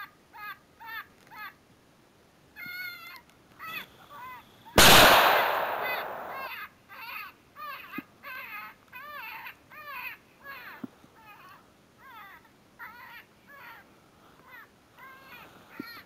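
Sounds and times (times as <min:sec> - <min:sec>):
rifle shot echoing: 0:04.8 - 0:06.6.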